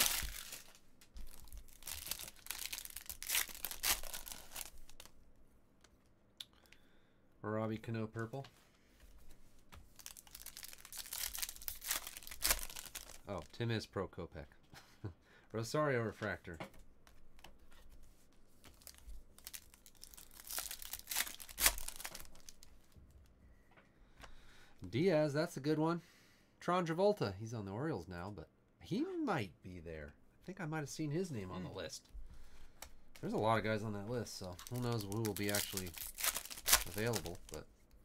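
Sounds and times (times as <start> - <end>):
foil wrapper tearing and crinkling: 0.0 - 5.1, 10.0 - 13.4, 18.7 - 22.7, 33.2 - 37.6
faint rustling of cards: 0.0 - 7.0, 7.8 - 14.8, 15.5 - 24.9, 30.1 - 38.0.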